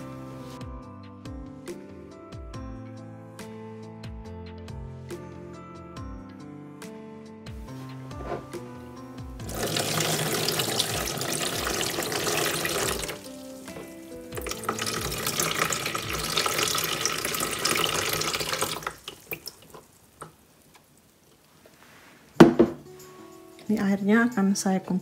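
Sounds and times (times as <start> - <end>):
water pouring into basin: 9.4 - 13.4, 14.3 - 19.9
water dripping: 9.4 - 21.5.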